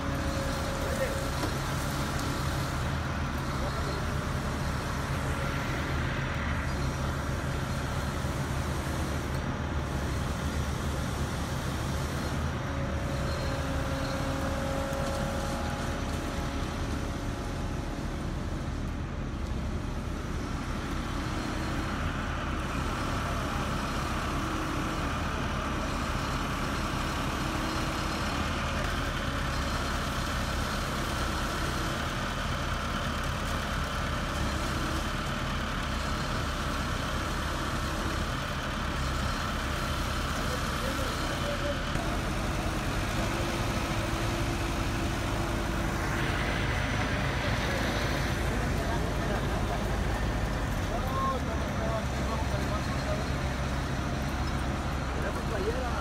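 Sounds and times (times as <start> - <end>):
diesel engine running: 0.0 - 56.0.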